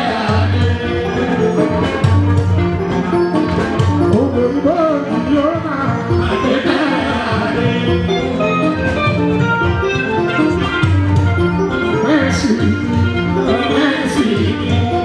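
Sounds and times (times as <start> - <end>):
drums: 0.0 - 15.0
held instrumental notes: 0.0 - 15.0
man singing into a microphone: 13.4 - 15.0.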